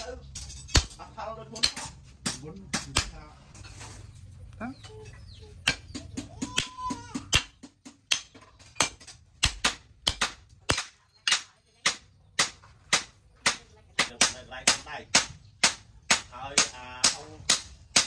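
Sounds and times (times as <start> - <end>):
cleaver chopping into steel: 5.7 - 13.1.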